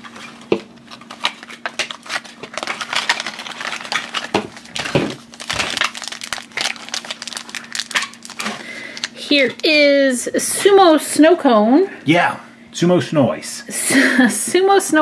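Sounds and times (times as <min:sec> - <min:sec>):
plastic wrapper crinkling: 0:00.0 - 0:09.8.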